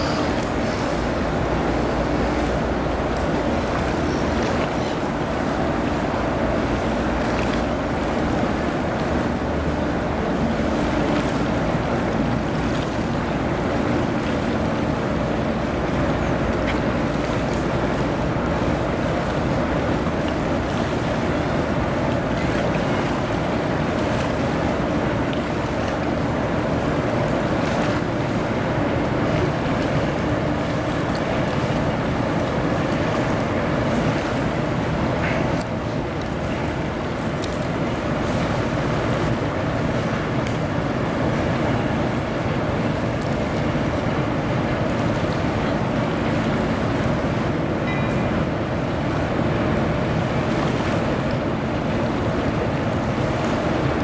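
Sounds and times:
ship engines droning: 0.0 - 54.0
water wash: 0.0 - 54.0.

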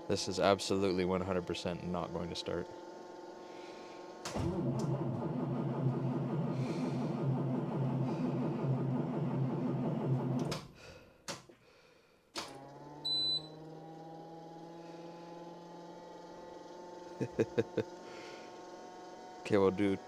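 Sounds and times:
electric brake pump whirring: 12.4 - 17.2.

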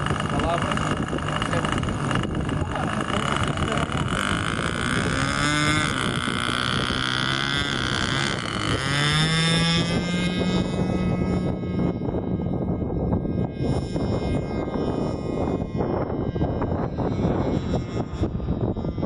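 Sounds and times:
model plane engine running: 0.0 - 19.0.

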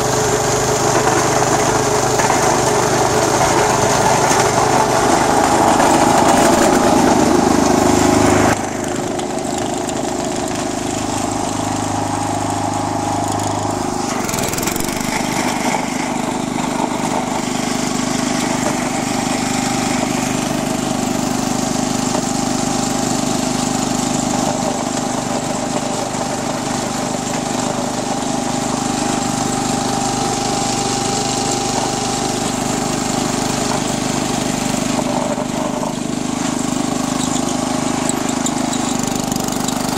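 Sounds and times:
garden tractor engine running: 0.0 - 39.9.

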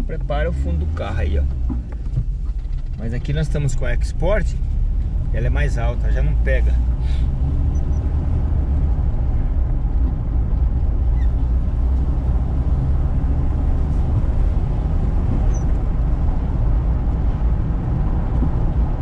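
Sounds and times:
car interior engine and tyre noise: 0.0 - 19.0.

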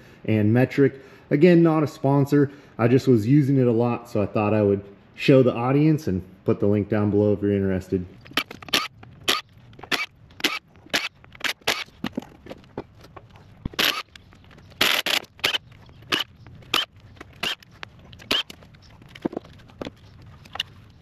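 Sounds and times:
impact driver bursts: 13.8 - 14.0.

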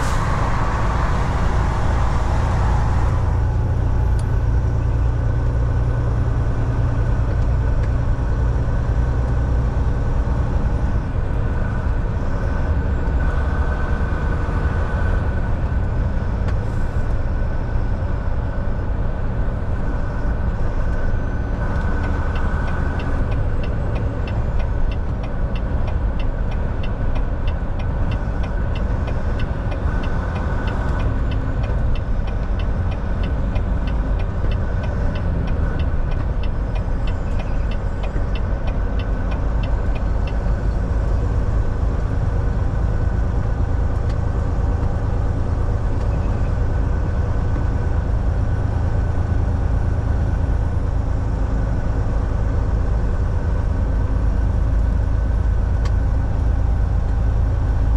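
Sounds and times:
thin whine: 0.0 - 4.6
truck engine and road rumble: 0.0 - 57.9.

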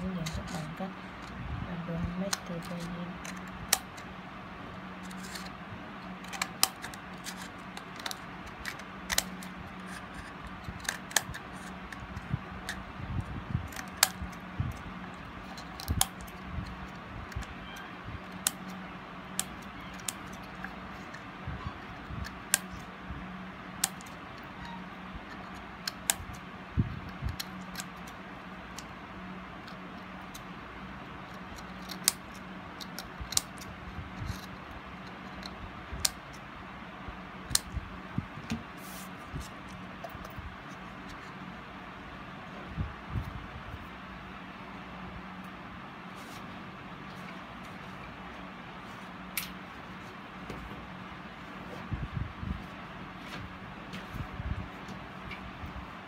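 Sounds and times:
scissors cutting cup: 5.0 - 5.5, 31.3 - 36.2.

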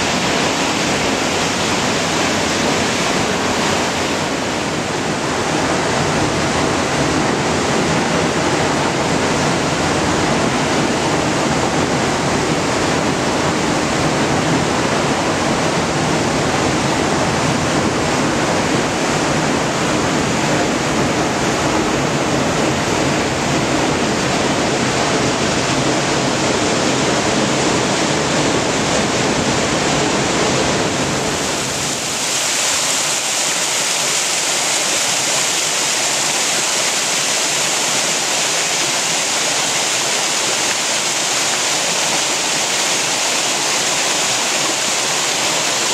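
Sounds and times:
waterfall rushing: 0.0 - 45.9
water splashing over rocks: 31.4 - 45.9.

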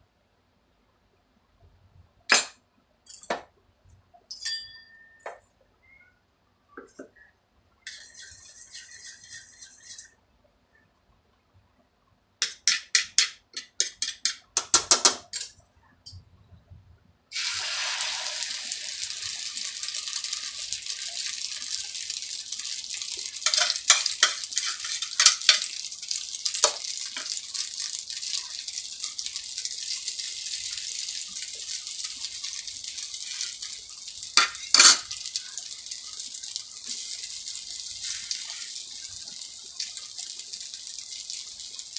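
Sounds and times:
whisk clinking on plate: 4.3 - 5.3, 23.4 - 25.7
egg sizzling on griddle: 7.8 - 10.2, 17.3 - 41.9
spatula tapping and scraping griddle: 7.9 - 10.1, 12.4 - 15.5, 22.6 - 30.0, 32.5 - 37.3.

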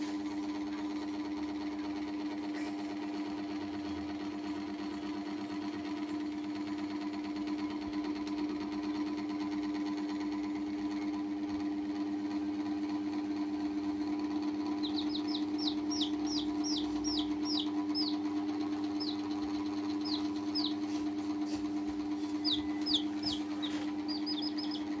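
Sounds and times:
machine hum: 0.0 - 25.0
baby chicks peeping: 14.4 - 25.0.

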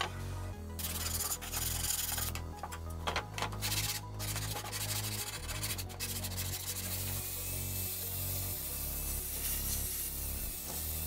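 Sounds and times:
sanding disc rubbing on plywood: 3.7 - 7.1.

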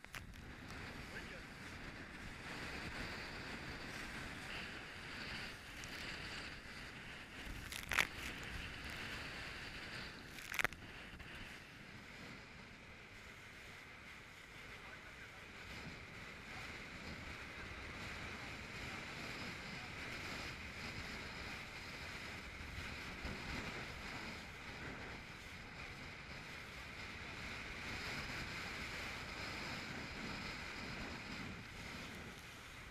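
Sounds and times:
rush of wind and water: 0.0 - 32.9
wind buffeting microphone: 0.0 - 32.9.

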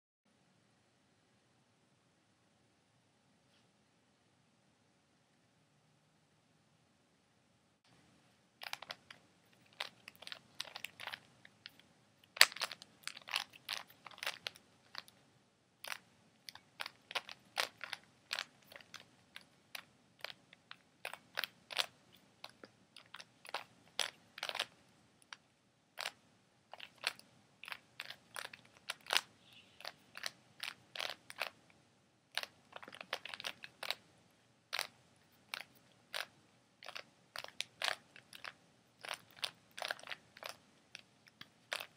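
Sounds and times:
puzzle cube clicking: 8.6 - 15.2, 15.9 - 25.4, 26.0 - 31.6, 32.3 - 34.1, 34.7 - 41.9.

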